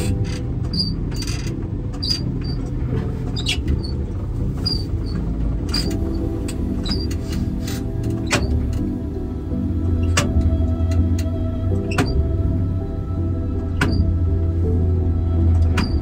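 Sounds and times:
high-pitched squeaks: 0.0s - 8.6s
vehicle low rumble: 0.0s - 16.0s.

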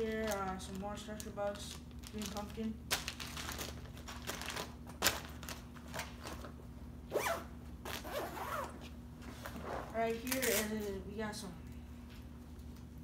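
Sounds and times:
plastic packaging rustling and crinkling: 0.0s - 6.6s, 9.4s - 10.8s.

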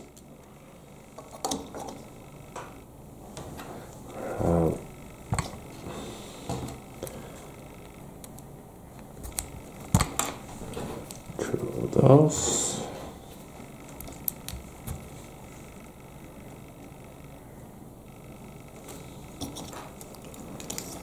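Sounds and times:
person's voice: 11.4s - 13.0s.

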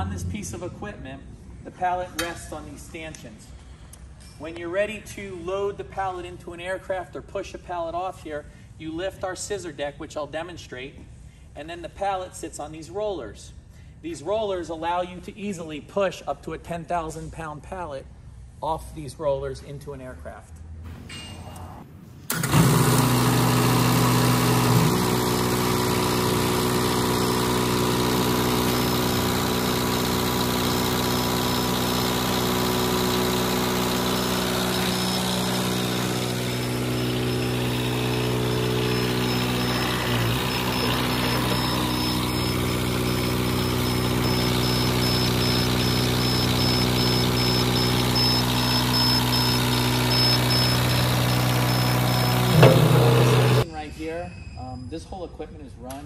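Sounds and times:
loader engine running: 0.0s - 0.8s, 21.1s - 53.6s.

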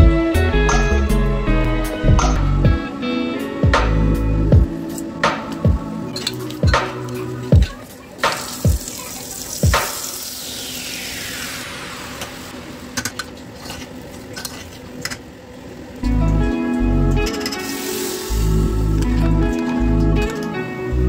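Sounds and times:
music: 0.0s - 12.5s, 16.0s - 21.0s
spices sizzling in hot oil: 8.3s - 12.9s, 17.6s - 19.0s.

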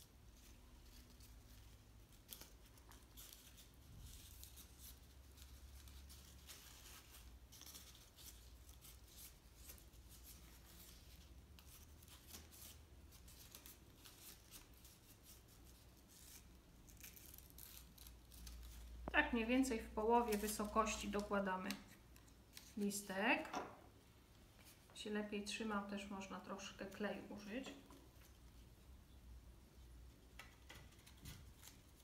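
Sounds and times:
crepe paper crinkling: 0.3s - 23.0s, 30.4s - 32.0s.

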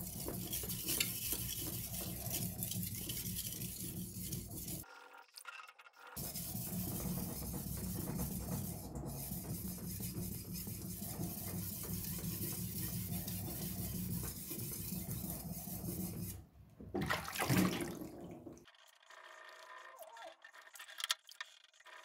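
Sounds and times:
blade scraping on wet whetstone: 0.0s - 4.9s, 6.2s - 16.4s.

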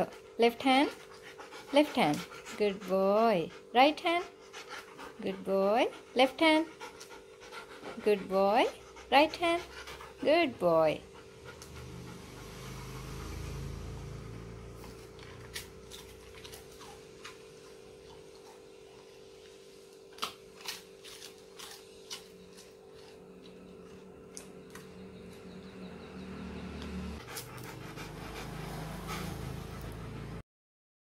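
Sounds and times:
steady low hum: 0.0s - 30.4s
dog chewing and licking: 14.8s - 25.5s.

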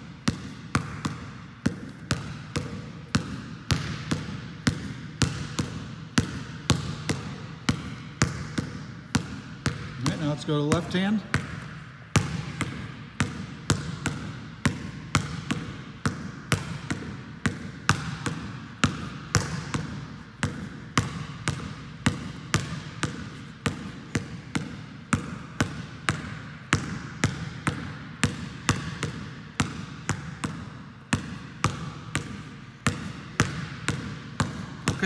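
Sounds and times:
basketball bouncing on gym floor: 0.0s - 35.0s.

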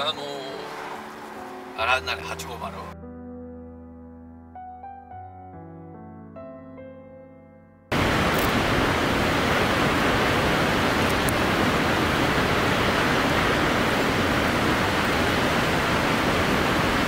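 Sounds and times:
waterfall rushing: 7.9s - 17.0s.

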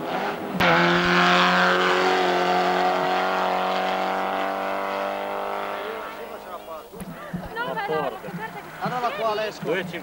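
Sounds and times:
race car engine at high revs: 0.0s - 6.6s.

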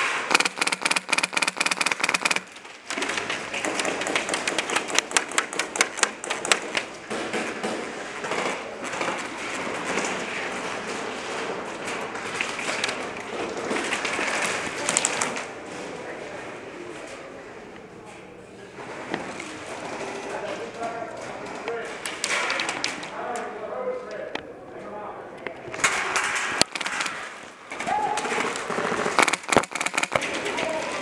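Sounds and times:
airsoft gun firing: 0.0s - 6.8s, 28.4s - 30.4s.

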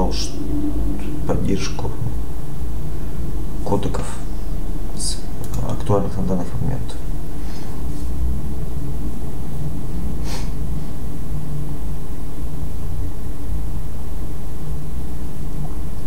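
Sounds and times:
low machine rumble: 0.0s - 16.0s
short breath: 10.2s - 10.6s.

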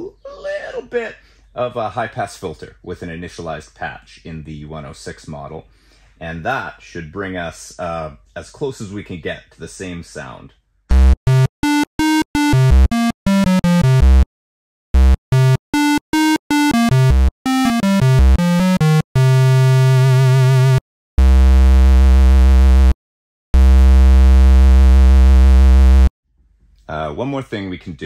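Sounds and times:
synthesizer short notes: 10.9s - 14.2s, 15.0s - 23.0s
synthesizer long low notes: 15.0s - 23.0s, 23.6s - 26.1s.

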